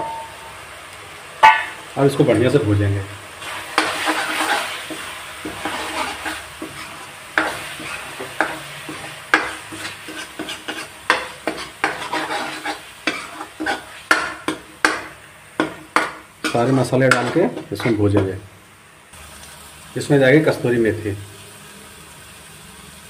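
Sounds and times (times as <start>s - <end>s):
frying sizzle: 0.0s - 23.0s
metal spoon scraping a metal pan: 3.4s - 18.4s.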